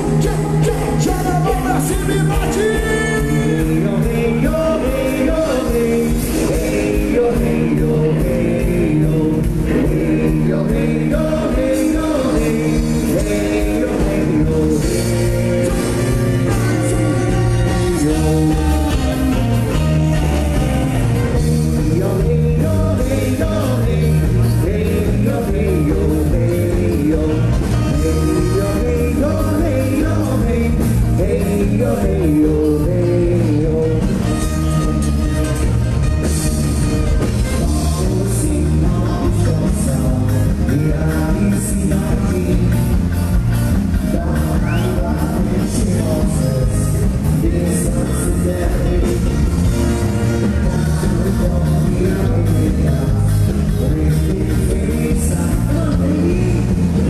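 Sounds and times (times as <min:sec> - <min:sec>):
men singing: 0:00.0 - 0:34.7, 0:37.6 - 0:57.0
bass guitar: 0:00.0 - 0:57.0
electric guitar: 0:00.0 - 0:57.0.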